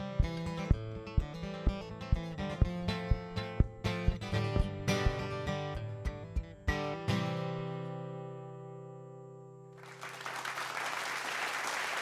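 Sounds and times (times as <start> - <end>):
acoustic guitar strumming: 0.0 - 9.7
applause: 9.8 - 12.0.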